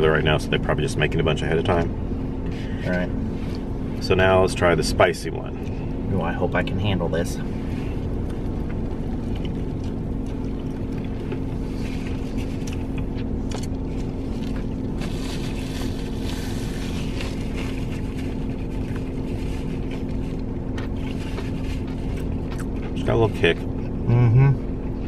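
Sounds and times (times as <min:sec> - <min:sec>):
car cabin hum: 0:00.0 - 0:25.0
chewing crispy food: 0:07.6 - 0:23.9
paper napkin rustle: 0:11.6 - 0:13.1, 0:13.8 - 0:22.5.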